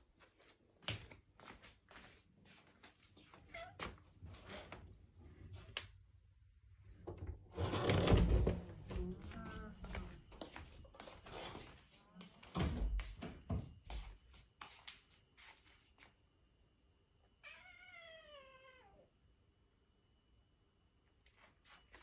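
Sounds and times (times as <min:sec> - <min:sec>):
cat meowing: 0:17.4 - 0:19.1.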